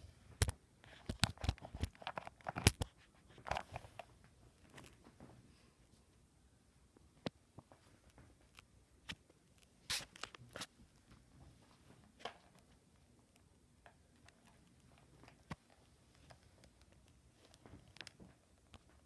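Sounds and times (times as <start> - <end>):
faint clicks and rustles: 0.3 - 6.2, 6.9 - 19.0.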